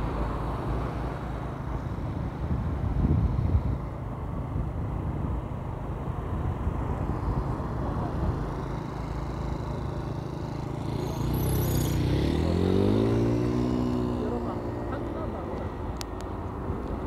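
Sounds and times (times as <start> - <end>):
road traffic rumble: 0.0 - 17.0
vehicle engine speeding up: 9.2 - 15.8.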